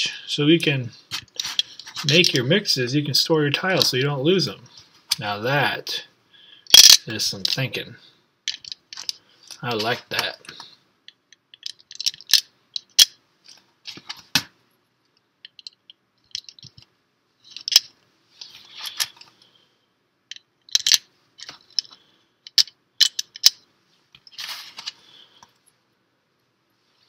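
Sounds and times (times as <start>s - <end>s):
plastic pieces clicking and snapping: 6.7s - 7.6s, 11.1s - 13.2s, 15.4s - 16.8s, 17.5s - 17.9s, 20.3s - 23.6s
rustling of plastic pieces: 11.6s - 14.2s, 17.4s - 19.3s.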